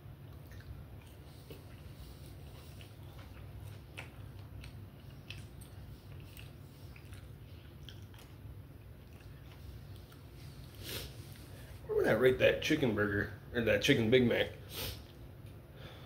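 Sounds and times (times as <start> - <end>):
low steady hum: 0.0 - 16.0
person chewing food: 0.2 - 11.8.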